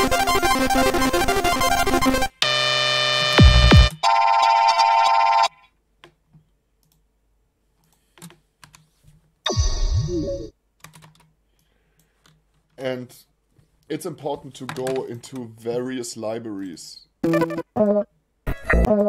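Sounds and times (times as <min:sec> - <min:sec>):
buzzing synth tone: 0:02.6 - 0:03.9
keyboard and mouse clicks: 0:06.0 - 0:07.0, 0:07.8 - 0:08.9, 0:10.8 - 0:12.7, 0:14.6 - 0:15.5.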